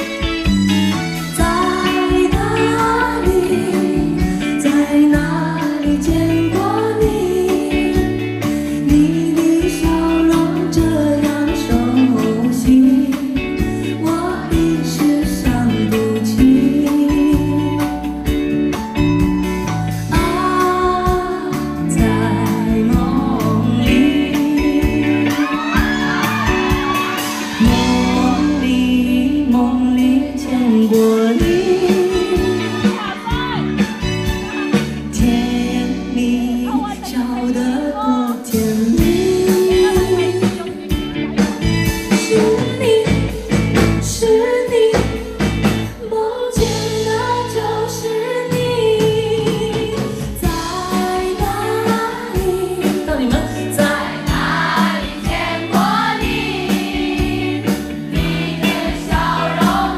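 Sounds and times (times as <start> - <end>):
band accompaniment with bass line: 0.0 - 59.9.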